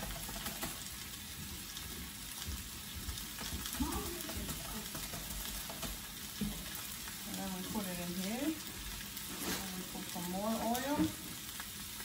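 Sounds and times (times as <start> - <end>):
meat frying in hot oil: 0.0 - 12.0.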